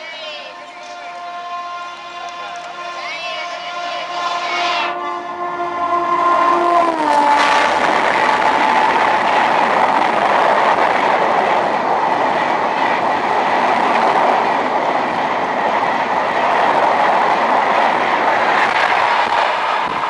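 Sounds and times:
locomotive horn: 0.0s - 9.1s
train wheels rushing on rails: 0.0s - 20.0s.

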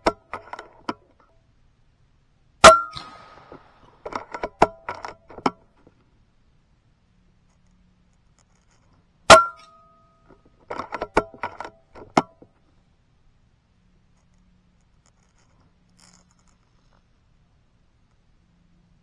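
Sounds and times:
air rifle firing: 2.6s - 4.1s
metallic clicks of rifle cocking: 2.6s - 5.7s.

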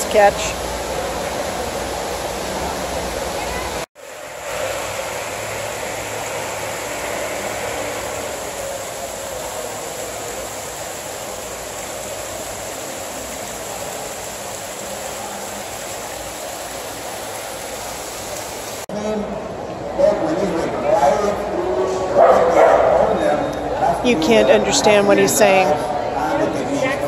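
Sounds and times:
waterfall splashing into pool: 0.0s - 18.9s.

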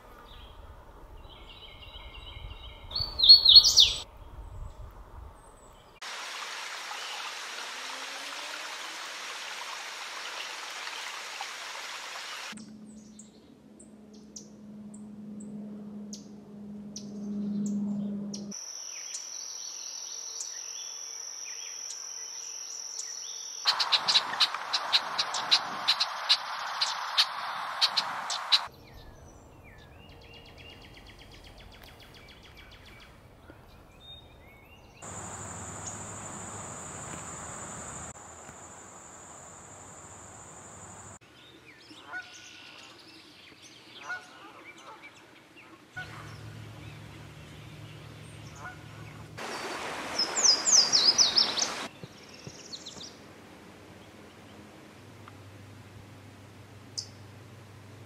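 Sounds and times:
bird chirps: 1.4s - 4.0s, 46.0s - 53.1s.

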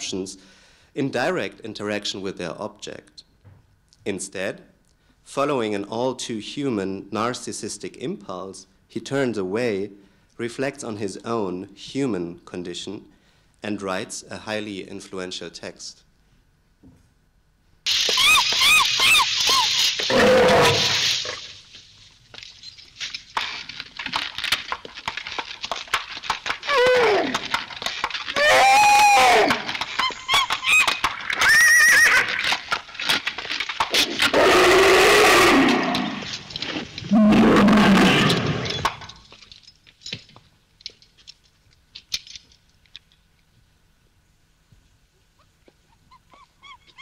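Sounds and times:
donkey braying: 17.9s - 21.6s, 24.0s - 39.1s, 45.4s - 47.0s
rough animal cry: 17.9s - 21.6s, 26.2s - 32.8s, 33.9s - 39.0s, 45.4s - 47.0s.

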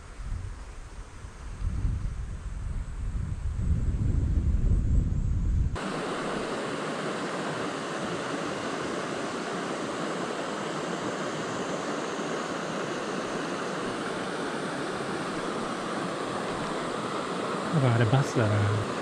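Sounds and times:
river flowing over rocks: 5.8s - 19.0s.

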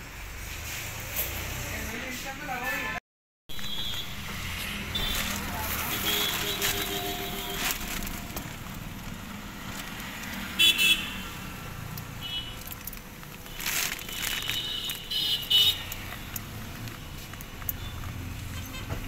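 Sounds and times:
plastic sheeting rustling: 3.6s - 10.2s, 12.6s - 15.3s.

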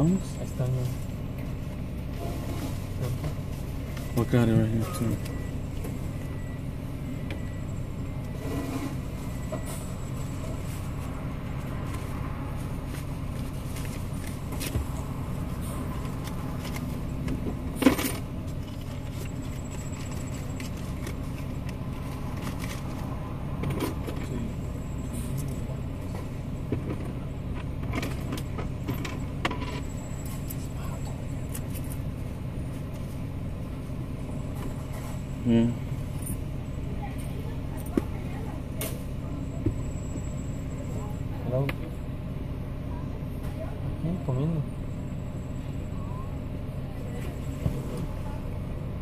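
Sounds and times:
car engine idling: 0.0s - 49.0s.

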